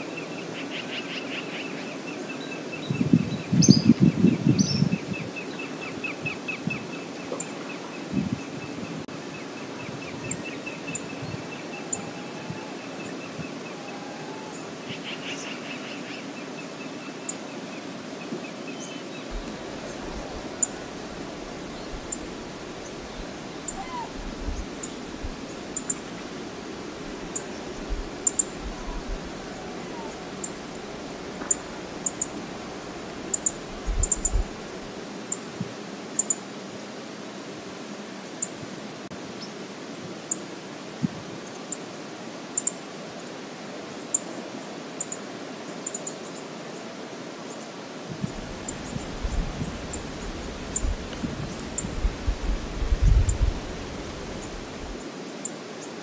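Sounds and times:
wind rumbling on microphone: 2.8s - 7.3s, 8.0s - 14.4s, 19.2s - 35.0s, 41.0s - 41.4s, 48.1s - 55.0s
river water rushing: 5.1s - 56.0s.

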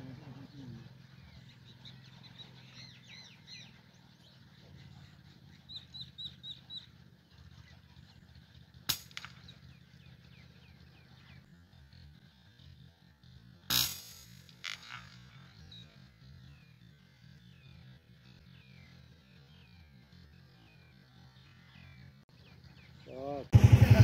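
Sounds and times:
small birds chirping: 0.0s - 13.7s, 14.3s - 23.9s
gunshot: 13.7s - 15.1s.

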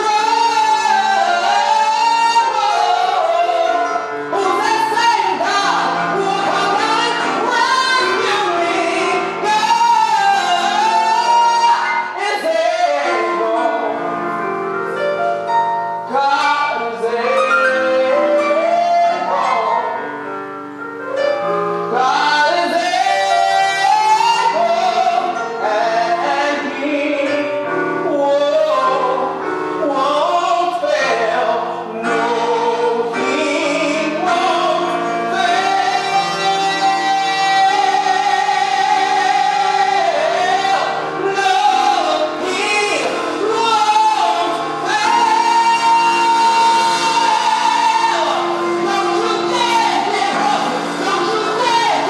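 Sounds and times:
man singing: 0.0s - 14.3s, 16.0s - 20.1s, 21.9s - 52.0s
instrumental accompaniment: 0.0s - 52.0s.

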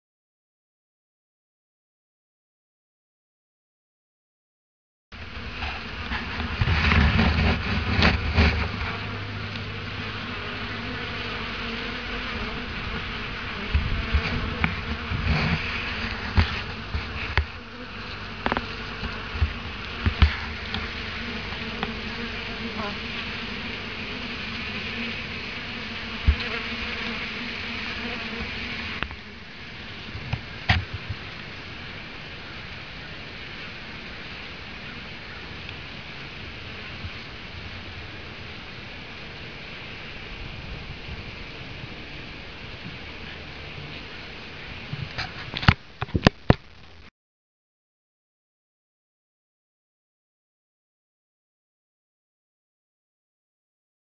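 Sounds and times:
bees buzzing: 5.2s - 31.1s.

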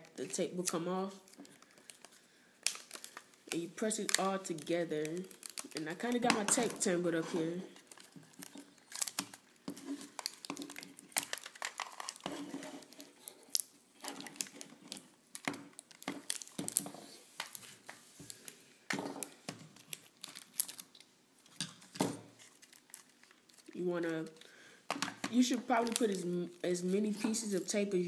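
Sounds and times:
adhesive tape peeling and ripping: 7.8s - 14.7s.

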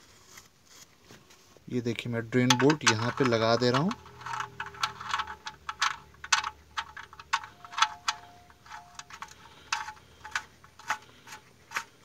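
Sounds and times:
metallic clicks of bolt turning: 2.4s - 12.0s.

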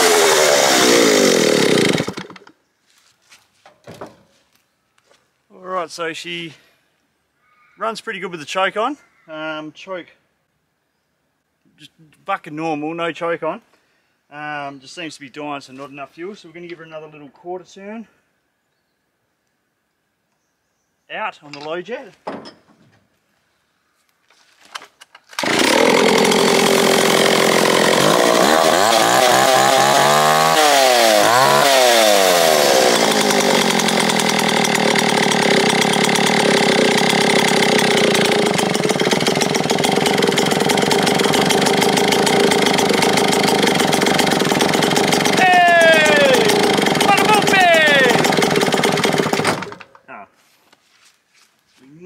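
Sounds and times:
chainsaw starting and revving: 0.0s - 2.6s, 25.3s - 50.0s.

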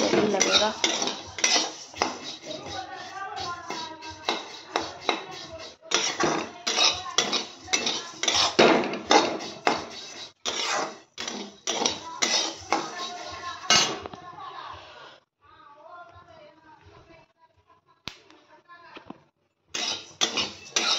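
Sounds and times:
metal spatula scraping a pan: 0.0s - 14.1s, 19.7s - 20.9s.

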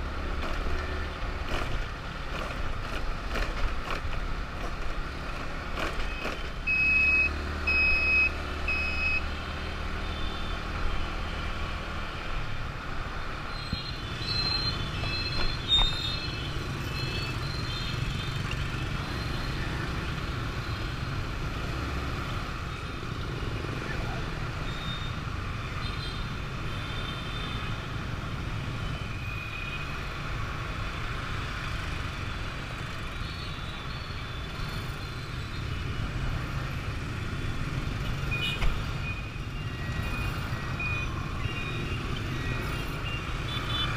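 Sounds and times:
road rumble: 0.0s - 27.0s.

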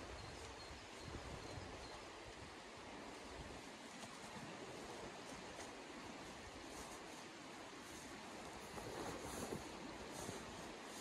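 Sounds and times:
river flowing: 0.0s - 11.0s
fabric sack rustling: 8.6s - 11.0s.

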